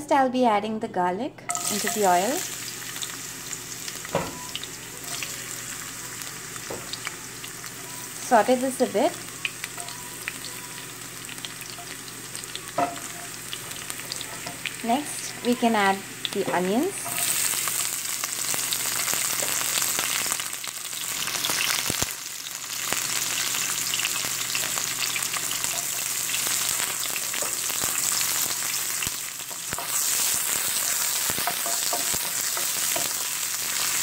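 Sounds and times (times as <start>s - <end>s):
onions sizzling in hot oil: 1.5s - 34.0s
spoon knocking against pan: 12.7s - 13.4s, 31.4s - 33.2s.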